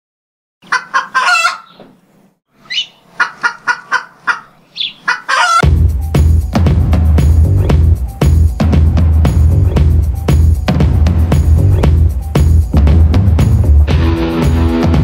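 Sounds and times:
chicken clucking: 0.6 - 2.0, 2.6 - 5.6
chicken squawks: 0.6 - 5.6
loud music with heavy drum beat: 5.6 - 15.0.

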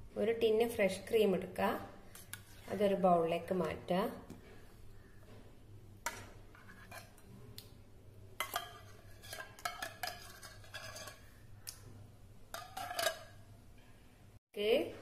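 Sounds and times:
metal spoon scraping a tin: 6.4 - 7.4, 8.4 - 11.4, 12.5 - 13.4.

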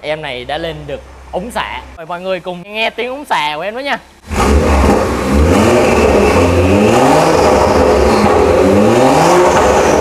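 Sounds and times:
car engine revving: 4.2 - 10.0.

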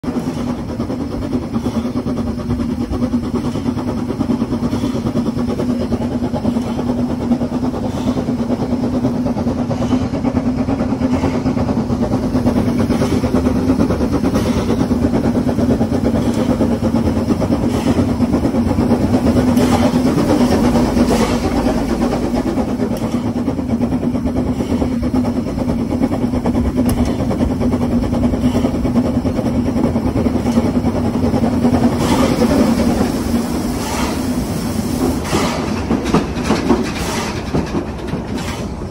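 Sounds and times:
steam locomotive running on rails: 0.0 - 38.9.

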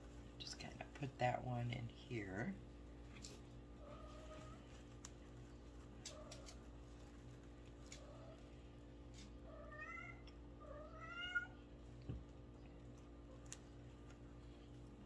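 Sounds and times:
cat meowing: 9.5 - 11.6.

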